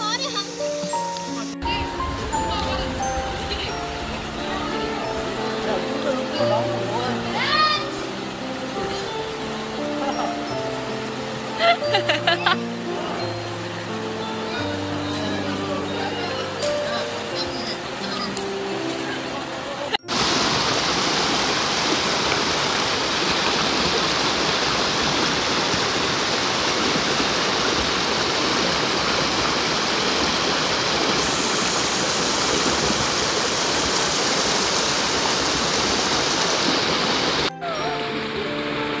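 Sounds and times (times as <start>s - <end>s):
stream rushing over rocks: 0.0s - 39.0s.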